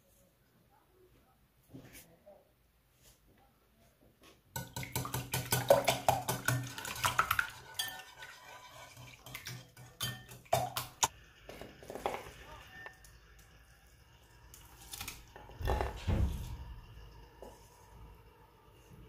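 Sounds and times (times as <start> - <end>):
whisk clattering in bowl: 4.6 - 11.0.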